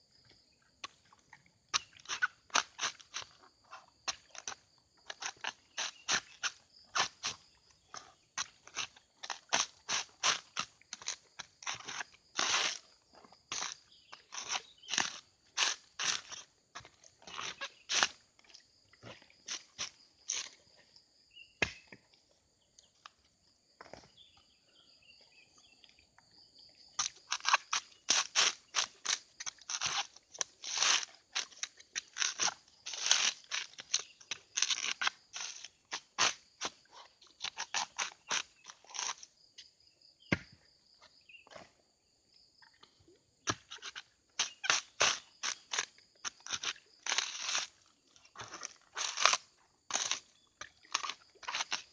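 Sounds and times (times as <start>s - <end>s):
coconut husk crunching and ripping: 1.7s - 20.7s, 21.6s - 21.9s, 26.9s - 39.5s, 43.4s - 51.9s.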